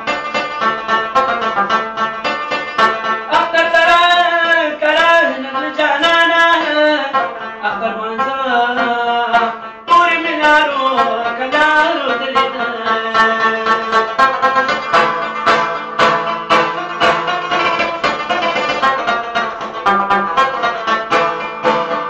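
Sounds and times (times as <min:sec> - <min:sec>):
plucked lute strings: 0:00.0 - 0:22.0
man singing: 0:03.2 - 0:15.1.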